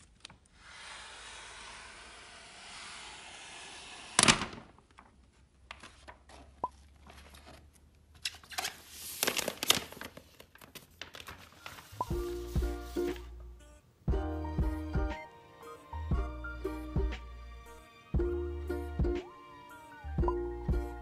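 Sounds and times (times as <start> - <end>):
plastic film crinkling: 8.4 - 13.0
plastic film crackle: 8.7 - 12.5.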